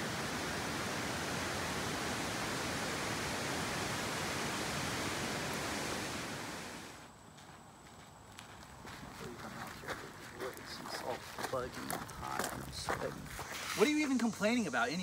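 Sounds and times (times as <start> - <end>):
river water rushing: 0.0 - 7.0.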